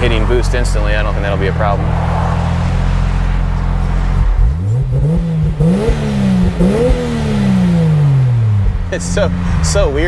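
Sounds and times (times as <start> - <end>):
pickup engine revving: 0.0 - 10.0.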